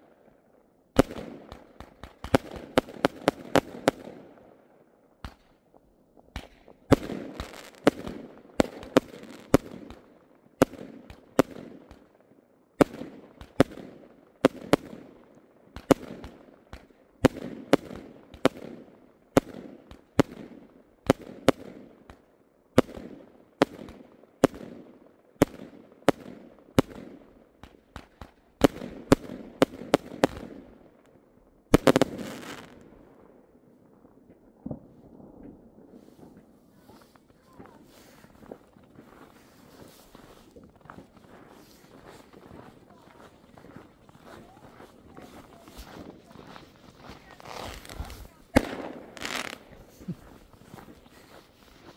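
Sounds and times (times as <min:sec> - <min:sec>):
fireworks bursting: 0:01.0 - 0:04.3, 0:06.3 - 0:10.0, 0:25.4 - 0:30.8, 0:31.7 - 0:33.0, 0:35.9 - 0:51.9.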